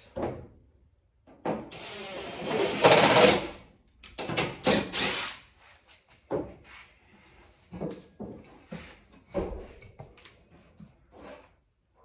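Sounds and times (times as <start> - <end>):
cordless drill driving screws: 4.5 - 5.5.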